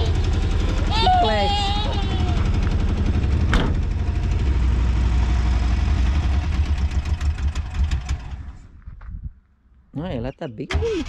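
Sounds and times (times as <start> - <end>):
van engine idling: 0.0 - 8.8.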